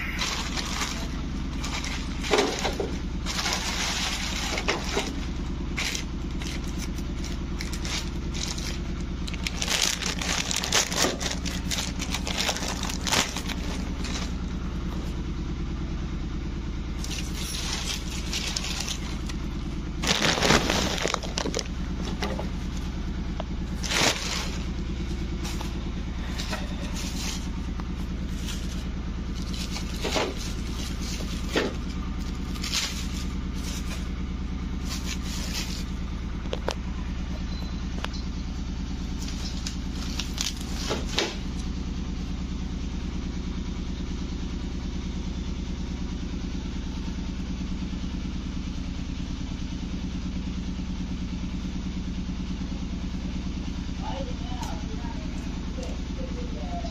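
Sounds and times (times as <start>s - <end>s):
bubble wrap crinkling: 0.0s - 15.1s, 17.0s - 23.0s, 23.6s - 37.2s, 38.8s - 41.6s
steady low hum: 0.0s - 56.9s.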